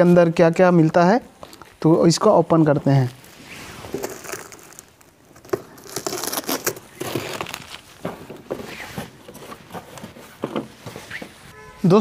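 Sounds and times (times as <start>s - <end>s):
cardboard box being opened: 3.7s - 11.4s.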